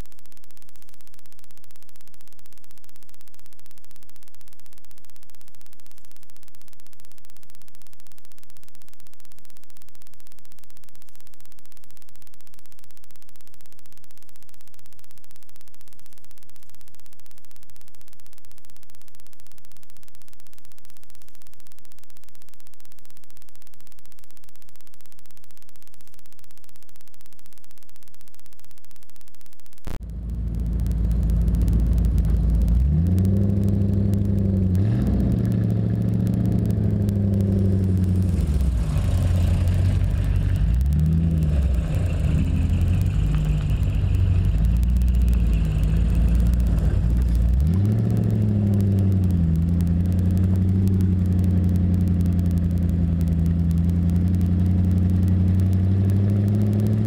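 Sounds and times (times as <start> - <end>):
road and wind rumble: 29.9 - 57.0
car engine accelerating: 30.0 - 57.0.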